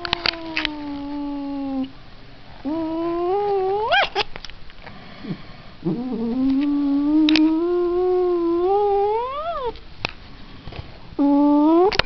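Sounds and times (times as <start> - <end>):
cat yowling: 2.7 - 4.3, 5.9 - 9.8.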